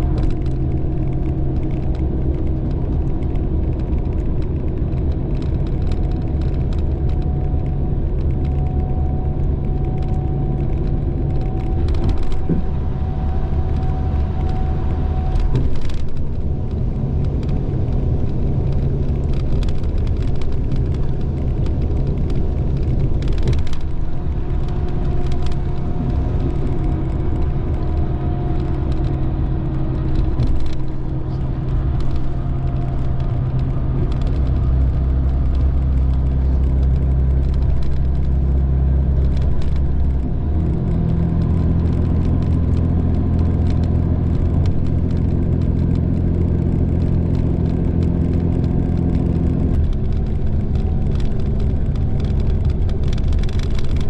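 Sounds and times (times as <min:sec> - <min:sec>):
diesel engine drone in bus: 0:00.0 - 0:54.0
road and tyre noise: 0:00.0 - 0:54.0.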